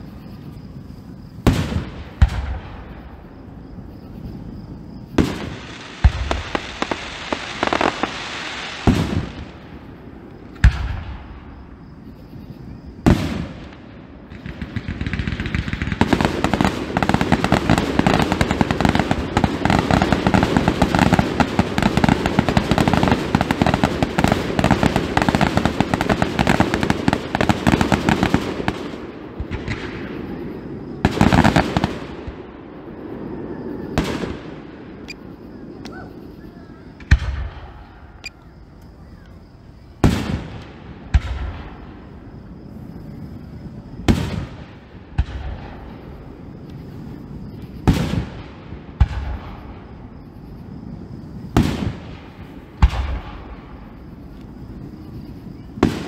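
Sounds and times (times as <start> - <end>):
fireworks crackling and popping: 1.4 - 3.0, 5.2 - 11.5, 13.0 - 32.5, 43.7 - 50.1, 51.1 - 56.0
firework bangs: 1.4 - 3.4, 5.1 - 11.6, 13.0 - 32.6, 33.8 - 35.0, 40.0 - 42.4, 44.0 - 50.4, 51.2 - 54.2, 55.8 - 56.0.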